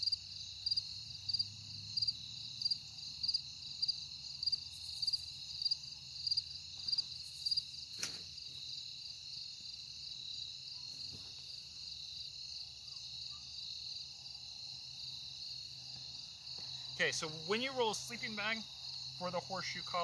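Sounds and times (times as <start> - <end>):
crickets chirping: 0.0 - 20.0
single sharp click: 8.0 - 8.2.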